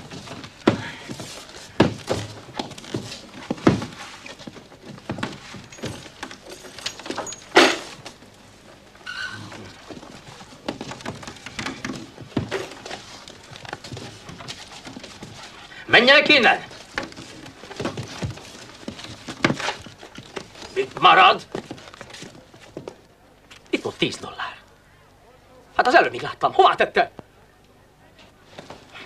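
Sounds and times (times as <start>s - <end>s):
thuds and clatter of objects: 0.0s - 8.2s, 9.6s - 15.5s, 16.7s - 23.0s.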